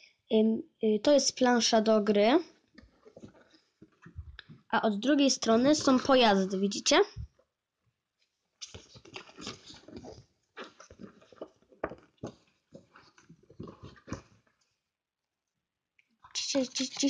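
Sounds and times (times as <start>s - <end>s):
cardboard rustling and scraping: 8.6s - 14.6s.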